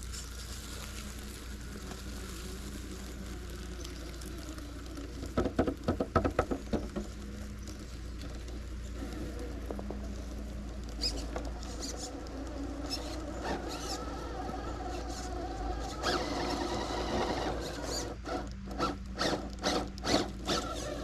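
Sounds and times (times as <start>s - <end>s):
electric motor and drivetrain whining: 0.0s - 21.0s
sharp clicks and knocks: 5.2s - 7.6s.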